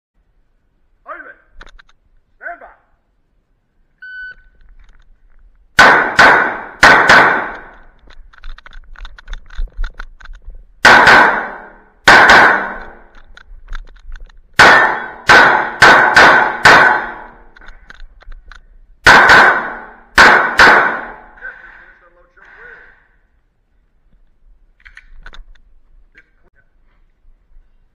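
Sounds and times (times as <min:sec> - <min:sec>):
pistol shots ringing: 0:05.8 - 0:07.8, 0:10.8 - 0:13.1, 0:14.6 - 0:17.6, 0:19.0 - 0:21.4.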